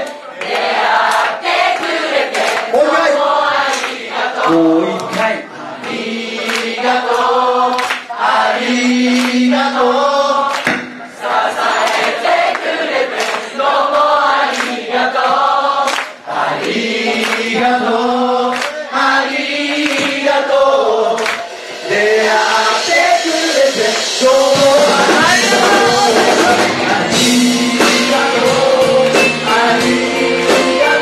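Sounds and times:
live band music: 0.0s - 31.0s
voices singing together: 0.0s - 31.0s.

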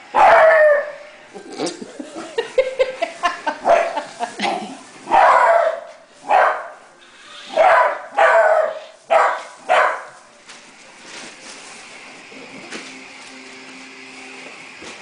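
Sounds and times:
puppy barking: 0.2s - 1.0s, 3.6s - 4.0s, 5.1s - 6.8s, 7.5s - 10.2s.

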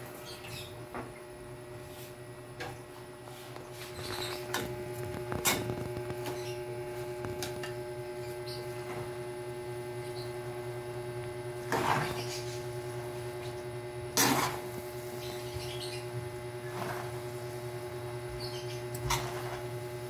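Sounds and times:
steady low hum: 0.0s - 20.0s
utensil scraping in metal wok: 11.6s - 12.6s, 14.2s - 14.7s, 16.6s - 17.2s, 19.0s - 19.7s.

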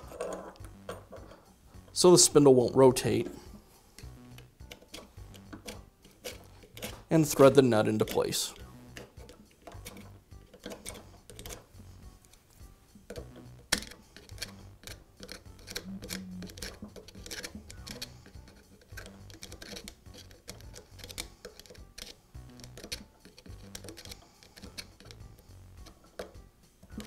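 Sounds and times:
small metallic clicks and taps: 13.1s - 25.2s.

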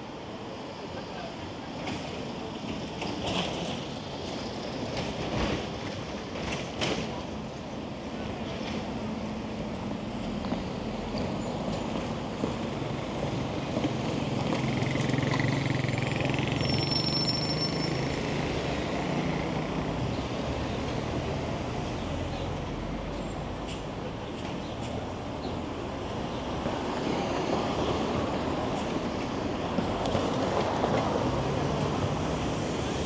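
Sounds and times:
city street traffic: 0.0s - 33.0s
high squeal: 16.5s - 18.2s.

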